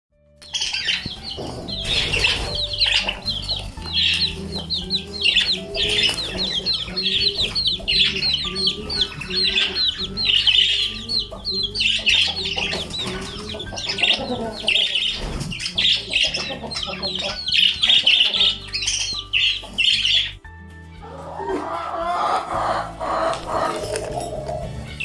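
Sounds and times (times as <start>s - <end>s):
budgerigars chirping: 0.4s - 20.4s.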